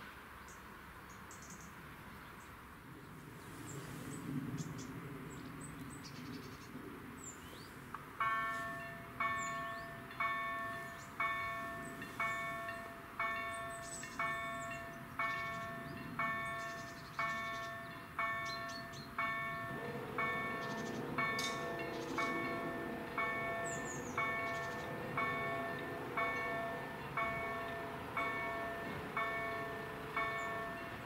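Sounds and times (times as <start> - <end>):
electronic level crossing bell: 8.3 - 31.0.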